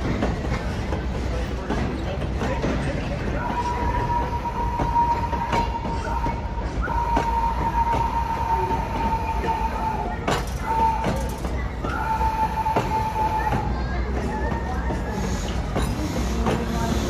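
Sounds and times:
train rumbling on track: 0:00.0 - 0:17.0
high wheel squeal: 0:03.4 - 0:17.0.

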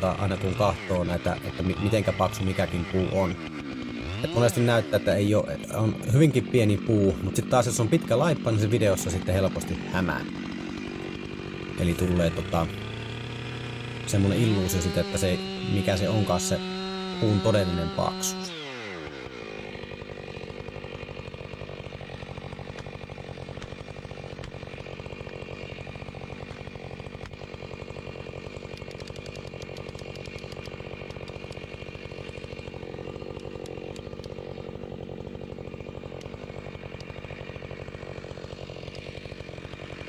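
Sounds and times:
chainsaw idling: 0:00.0 - 0:40.0
felling jack clicks: 0:22.6 - 0:24.6, 0:26.3 - 0:27.5, 0:28.6 - 0:34.5, 0:36.1 - 0:37.2, 0:38.8 - 0:39.1.

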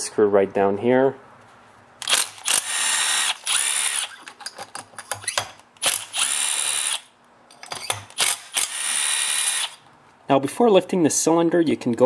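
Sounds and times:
power driver unscrewing screws: 0:02.0 - 0:09.8.

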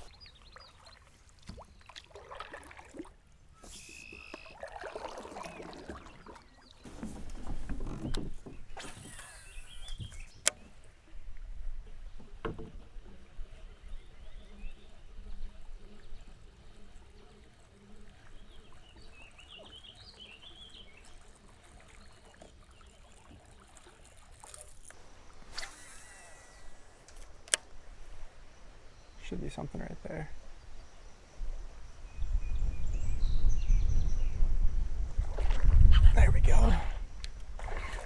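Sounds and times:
bird chirping: 0:07.8 - 0:10.6.

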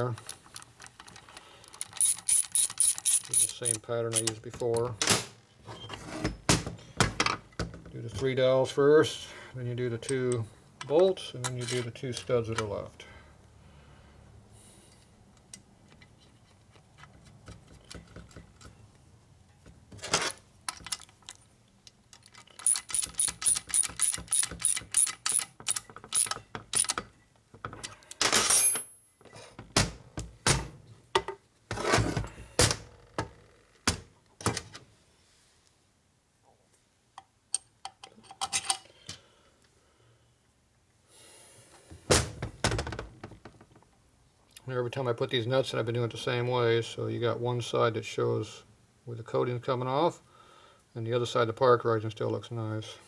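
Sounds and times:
ratchet wrench clicking: 0:00.2 - 0:04.4, 0:22.5 - 0:27.0.

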